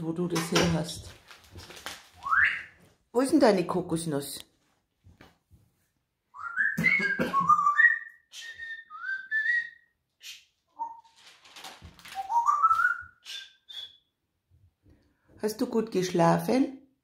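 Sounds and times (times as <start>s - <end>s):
parrot whistling rising notes: 6.4s - 9.8s, 12.2s - 14.0s.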